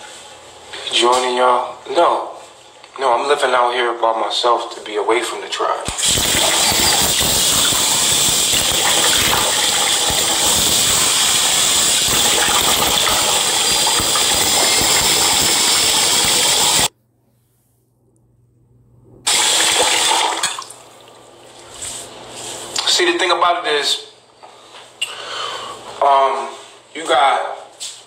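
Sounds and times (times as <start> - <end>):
tap water splashing into sink: 19.7 - 21.2.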